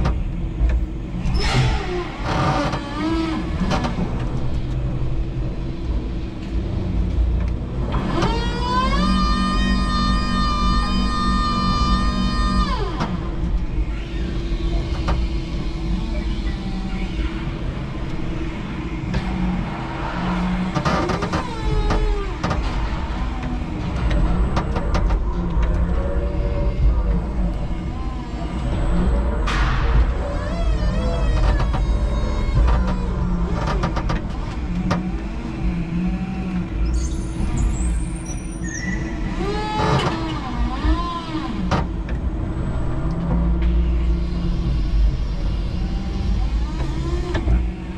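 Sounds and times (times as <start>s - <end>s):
sharp clicks and knocks: 0.0s - 0.8s, 20.6s - 26.0s, 29.4s - 35.2s
forklift motor whines: 7.8s - 22.4s
low rumble: 13.1s - 39.4s.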